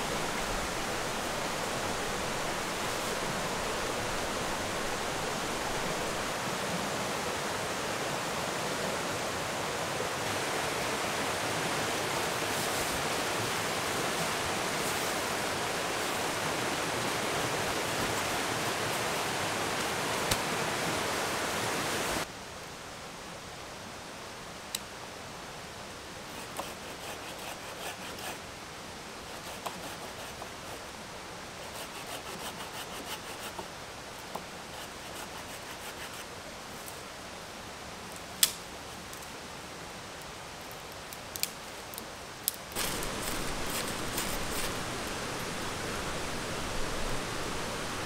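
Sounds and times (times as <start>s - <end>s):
waterfall rushing: 0.0s - 22.3s, 42.8s - 48.0s
dry branches snapping and crackling: 38.4s - 38.6s, 41.3s - 44.8s.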